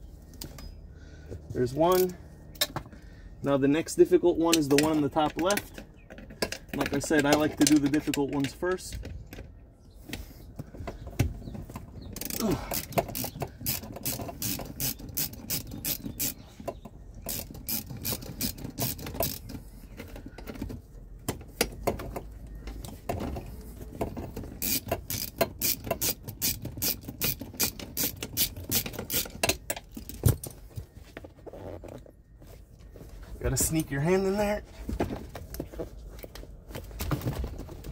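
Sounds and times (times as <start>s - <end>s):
hand ratchet clicking: 12.2s - 16.4s, 17.2s - 19.6s, 24.5s - 30.1s.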